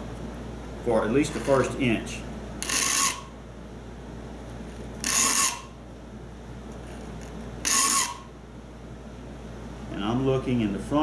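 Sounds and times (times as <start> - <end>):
file rasping on saw teeth: 2.6 - 3.3, 5.0 - 5.7, 7.6 - 8.2.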